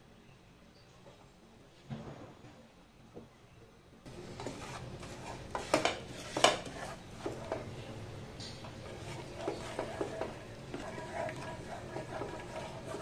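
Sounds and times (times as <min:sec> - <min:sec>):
steady low hum: 0:00.0 - 0:13.0
wooden spatula scraping a pan: 0:04.2 - 0:07.7, 0:08.7 - 0:13.0.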